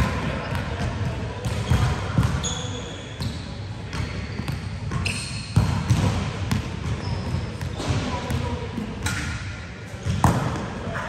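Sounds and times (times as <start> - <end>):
voices in background: 0.0 - 11.0
shoes squeaking on floor: 2.4 - 5.7, 6.8 - 7.9
volleyball struck and bouncing: 10.0 - 10.7.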